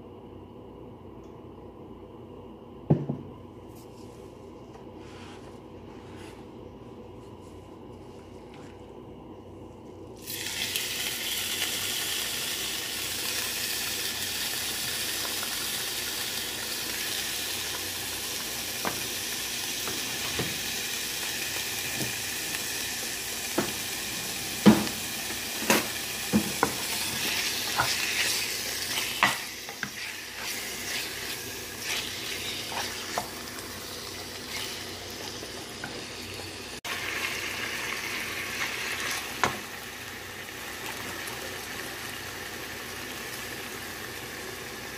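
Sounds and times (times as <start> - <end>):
chicken sizzling in hot oil: 10.2 - 44.9
wooden spoon knocking in pan: 26.3 - 26.8.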